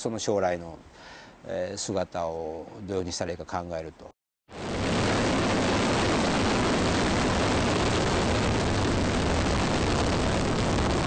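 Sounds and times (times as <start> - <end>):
rocket engines rumbling: 4.6 - 11.0.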